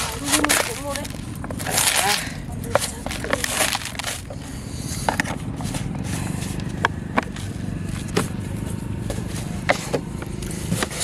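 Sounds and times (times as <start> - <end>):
hands scraping powder in plastic basin: 0.0 - 4.3
steady low rumble: 0.0 - 11.0.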